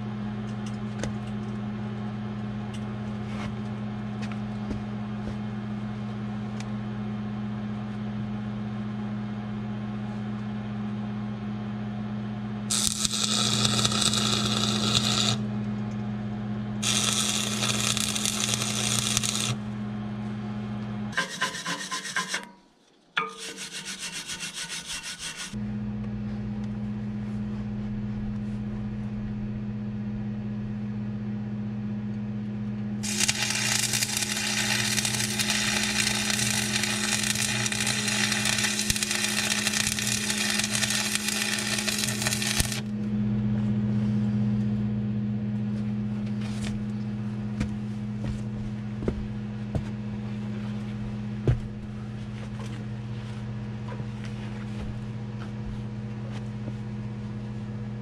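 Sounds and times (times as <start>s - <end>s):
low electrical hum: 0.0s - 21.5s, 25.5s - 58.0s
welding arc crackling: 12.7s - 15.5s, 16.8s - 19.6s, 33.0s - 42.9s.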